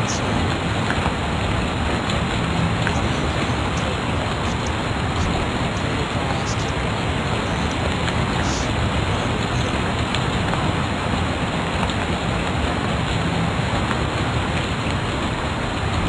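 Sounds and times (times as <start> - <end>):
steady hiss: 2.4 - 10.2.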